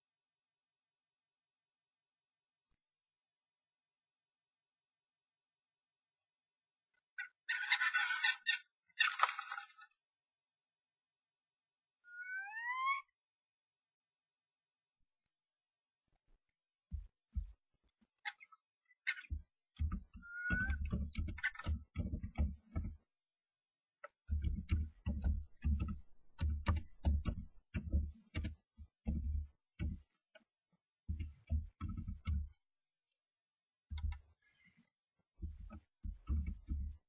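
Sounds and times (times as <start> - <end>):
bird squeak: 12.0 - 13.1, 20.2 - 20.8
birds scrabbling in nest box: 18.2 - 23.0.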